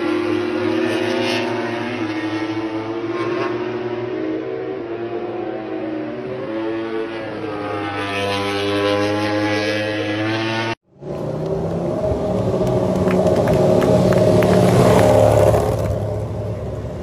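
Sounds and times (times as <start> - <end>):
motorcycle engine at full throttle: 6.4 - 17.0
steady engine drone: 8.0 - 17.0.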